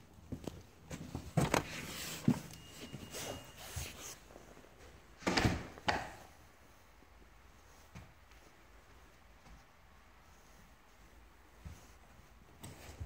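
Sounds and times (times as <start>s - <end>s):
wooden door shutting: 5.2s - 6.2s.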